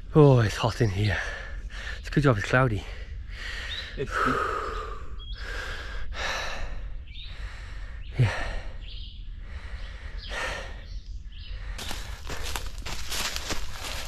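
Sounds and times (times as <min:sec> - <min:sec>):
man panting: 0:03.3 - 0:08.8, 0:09.4 - 0:10.9
footsteps on dry leaves: 0:11.8 - 0:14.0.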